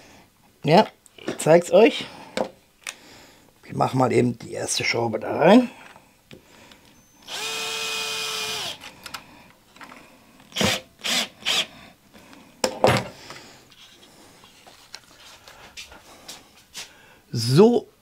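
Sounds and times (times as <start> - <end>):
cordless drill driving screw: 7.2 - 8.9, 10.5 - 11.7.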